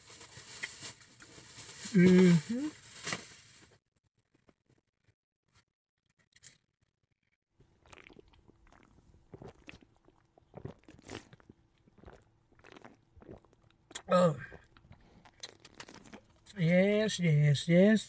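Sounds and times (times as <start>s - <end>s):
soft swallowing gulps: 7.7s - 16.3s.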